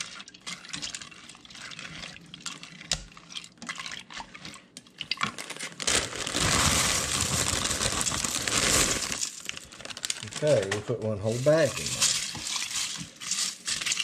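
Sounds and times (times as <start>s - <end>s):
spoon stirring liquid in a pot: 0.0s - 5.3s, 11.3s - 14.0s
dry noodles poured into pot: 5.3s - 14.0s.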